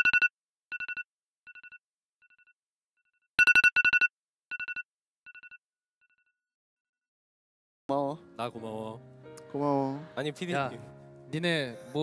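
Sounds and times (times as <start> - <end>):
phone alarm rapid high beeps: 0.0 - 1.8, 3.4 - 5.6.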